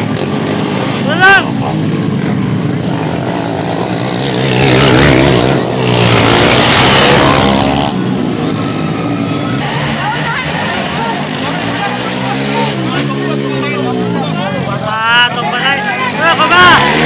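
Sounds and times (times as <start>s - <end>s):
racing motorcycles passing: 0.0s - 17.0s.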